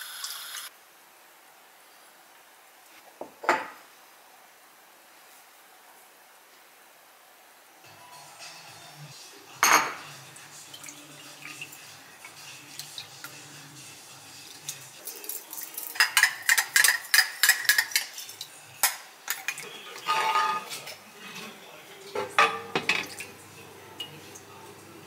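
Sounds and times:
dishes and cutlery clinking: 9.6 - 13.4, 14.5 - 24.6.

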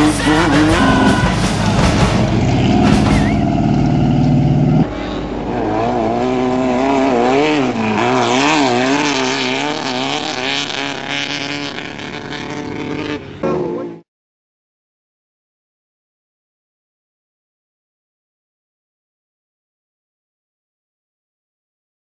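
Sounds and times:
engine revving: 0.0 - 14.0
steady engine note: 0.0 - 14.0.

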